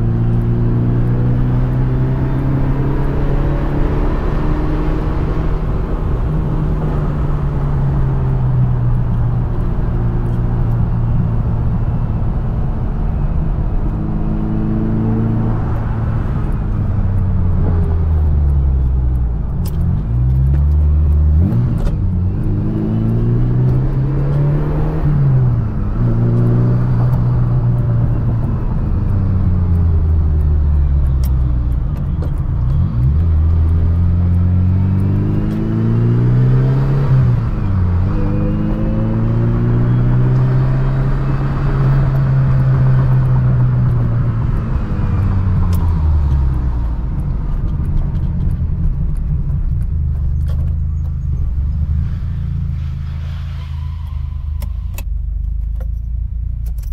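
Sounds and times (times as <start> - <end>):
car engine accelerating and idling: 0.0 - 56.9.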